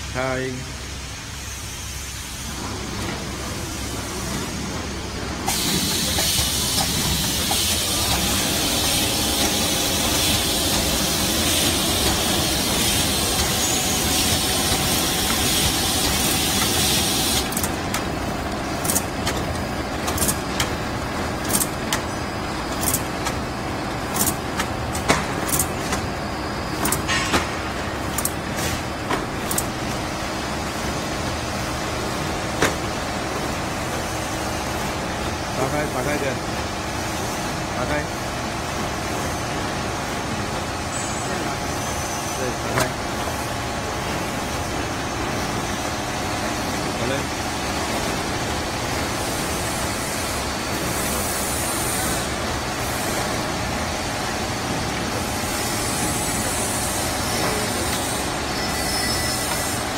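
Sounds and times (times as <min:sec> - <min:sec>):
loud steady hiss: 0:00.0 - 0:59.9
machine mechanical clatter: 0:05.4 - 0:29.9
sharp machine clicks: 0:18.8 - 0:19.4, 0:20.0 - 0:20.7, 0:21.4 - 0:22.0, 0:22.7 - 0:23.4, 0:24.1 - 0:26.0, 0:28.1 - 0:28.4, 0:29.4 - 0:29.8.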